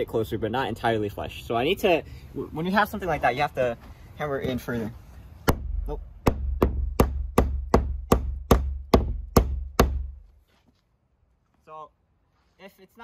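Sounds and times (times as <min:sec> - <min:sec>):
hammer striking a nail: 0:05.4 - 0:10.2.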